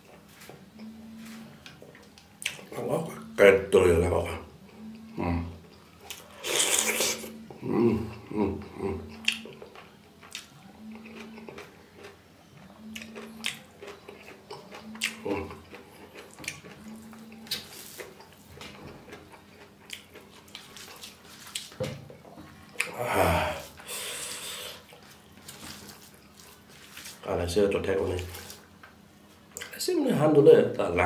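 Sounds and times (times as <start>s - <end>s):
chewing and mouth smacks: 0.1s - 2.7s, 4.6s - 8.3s, 9.1s - 23.0s, 24.8s - 27.2s, 28.2s - 29.8s.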